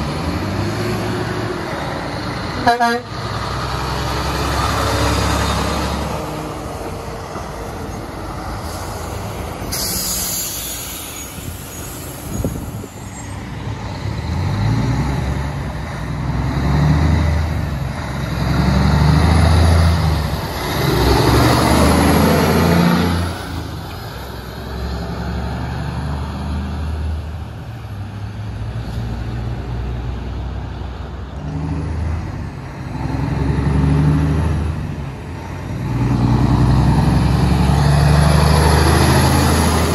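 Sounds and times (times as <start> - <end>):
diesel trucks passing: 0.0 - 39.9
air brake hiss: 8.5 - 13.4.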